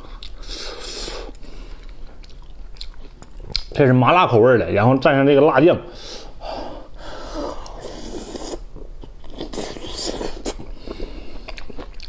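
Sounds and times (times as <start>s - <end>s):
wet lip smacks and chewing: 0.1s - 0.5s, 1.3s - 3.7s, 8.4s - 12.0s
breathy air sounds: 5.9s - 8.0s.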